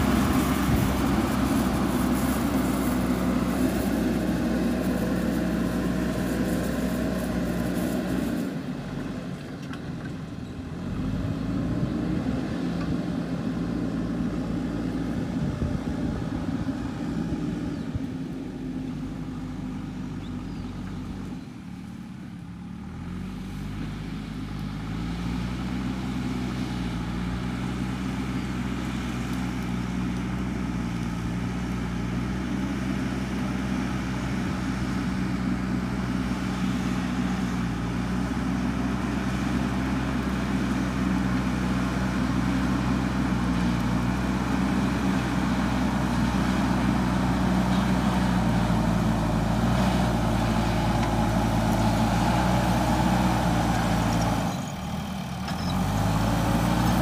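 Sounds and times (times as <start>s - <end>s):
bucket pushing soil and brush: 0.0s - 8.6s
backhoe diesel engine running: 0.0s - 57.0s.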